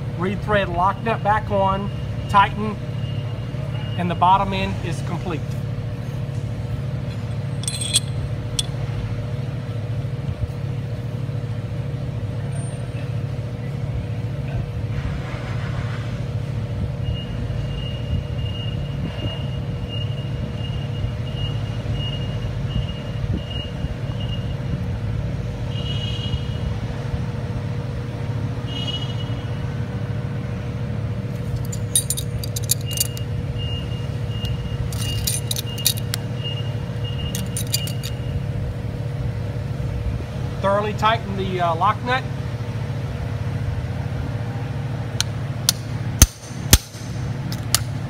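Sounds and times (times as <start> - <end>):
low workshop rumble: 0.0 - 20.5, 26.6 - 48.0
constant hum: 0.0 - 48.0
metal wrench clinking: 7.1 - 8.8, 31.4 - 33.3, 34.4 - 36.2, 37.0 - 38.3, 46.2 - 47.9.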